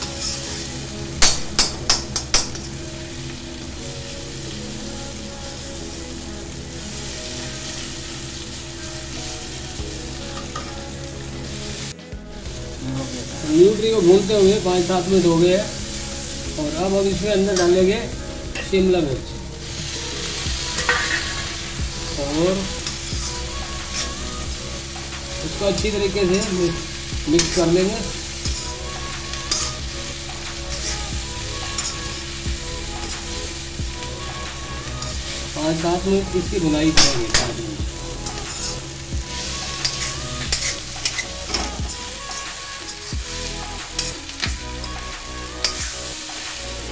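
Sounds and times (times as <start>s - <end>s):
ladle scraping a pan: 0.0s - 0.8s, 19.6s - 21.8s, 38.2s - 44.4s
steel spatula scraping a pan: 0.0s - 2.8s, 19.6s - 32.2s, 37.0s - 45.0s, 45.6s - 46.9s
food sizzling in a pan: 0.0s - 46.9s.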